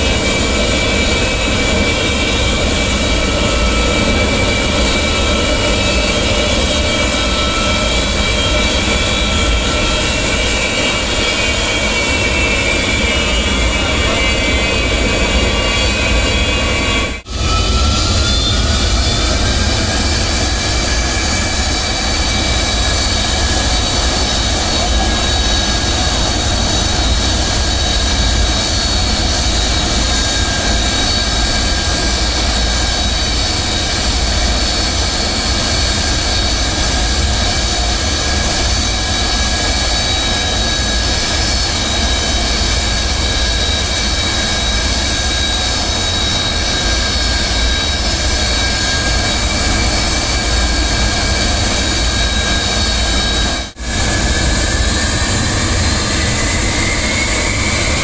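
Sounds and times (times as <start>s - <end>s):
jet engines rumbling and whining: 0.0s - 58.0s.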